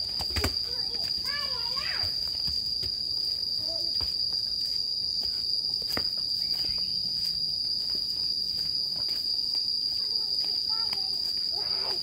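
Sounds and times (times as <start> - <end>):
high-pitched insect drone: 0.0 - 12.0
soft footsteps on trail: 0.0 - 12.0.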